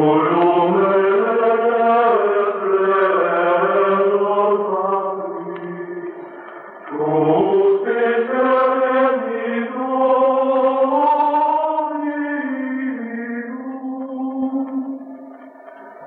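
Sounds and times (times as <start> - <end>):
chanted singing: 0.0 - 16.0.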